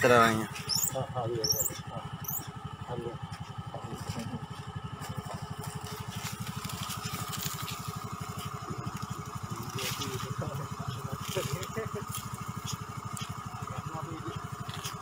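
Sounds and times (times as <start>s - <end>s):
small engine idling: 0.0s - 15.0s.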